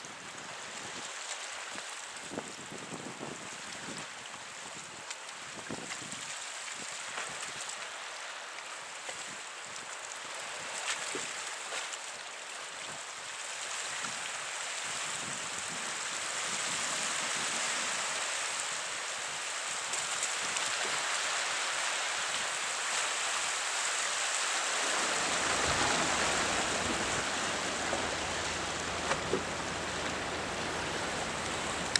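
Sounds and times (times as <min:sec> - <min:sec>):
sea waves on rocky shore: 0:00.0 - 0:31.9
low rumble: 0:25.0 - 0:31.9.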